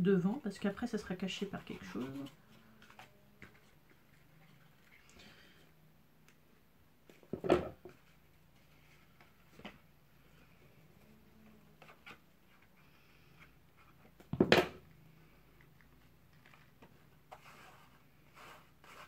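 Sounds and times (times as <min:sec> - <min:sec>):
objects clattering on wooden table: 0:07.2 - 0:08.0, 0:14.2 - 0:14.8.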